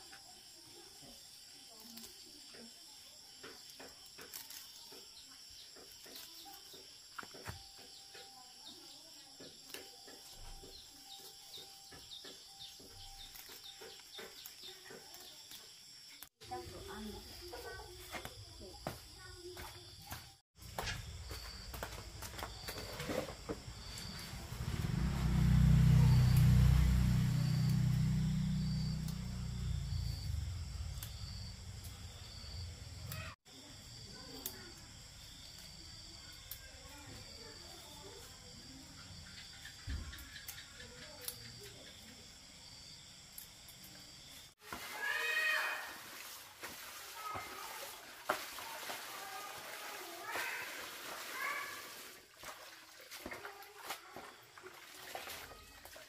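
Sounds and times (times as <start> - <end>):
insects chirping: 0.0 - 56.0
stems snapping and rustling: 3.4 - 5.1, 5.7 - 8.3, 9.5 - 16.4
low engine-like hum: 23.9 - 33.2.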